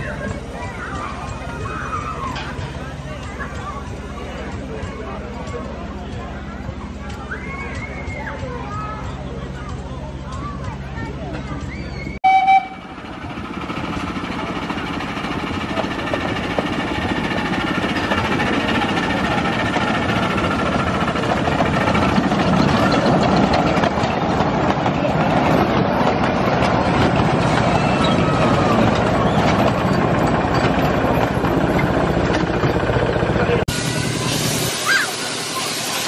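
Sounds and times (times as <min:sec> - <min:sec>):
miniature train passing: 0:00.0 - 0:36.0
steam locomotive whistle: 0:12.2 - 0:13.0.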